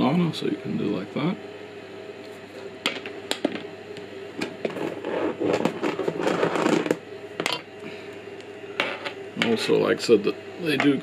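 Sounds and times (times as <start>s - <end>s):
cables rubbing and scraping: 4.5s - 7.0s.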